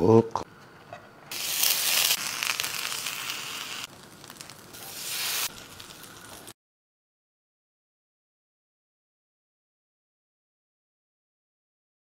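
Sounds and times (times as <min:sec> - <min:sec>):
sauce sizzling on a grill pan: 0:01.3 - 0:06.6.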